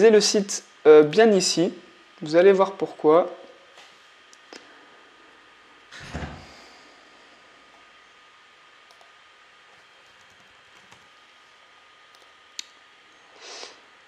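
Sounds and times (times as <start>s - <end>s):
low room hiss: 0.0s - 14.0s
keyboard typing: 10.0s - 11.1s.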